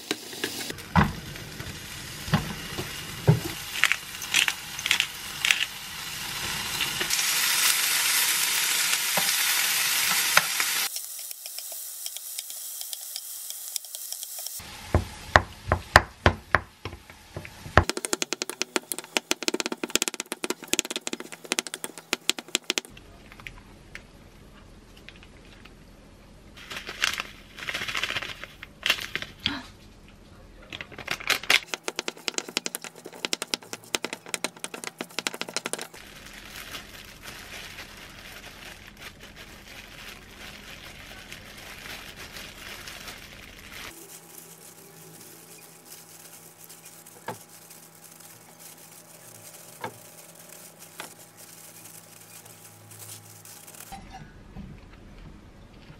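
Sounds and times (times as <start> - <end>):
plastic gloves crinkling: 17.5 - 23.0, 26.6 - 29.5, 30.8 - 54.0.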